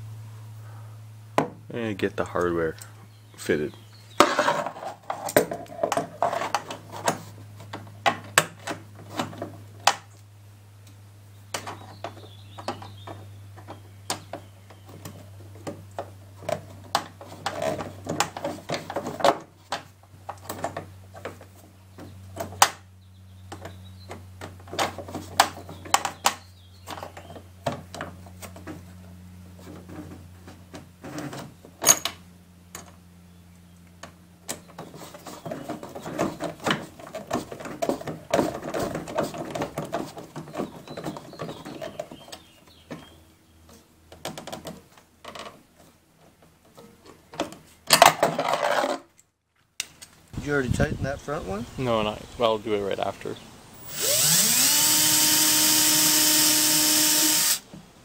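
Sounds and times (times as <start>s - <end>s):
steady low hum: 0.0s - 44.2s
metal hardware clicks and knocks: 31.8s - 33.0s.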